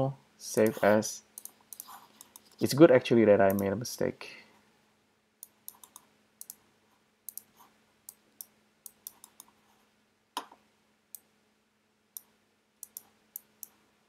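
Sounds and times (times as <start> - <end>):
mouse and keyboard clicks: 0.6 - 2.7, 5.4 - 6.6, 7.3 - 9.6.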